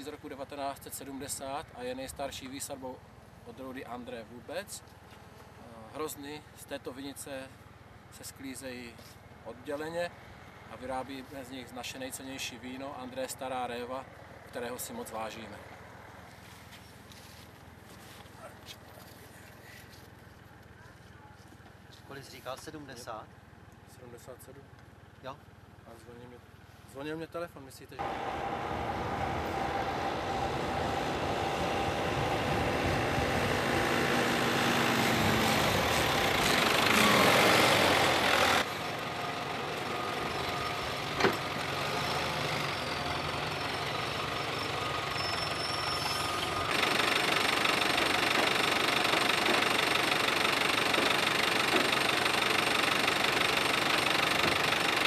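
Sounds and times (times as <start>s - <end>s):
tractor diesel engine running: 28.0s - 55.0s.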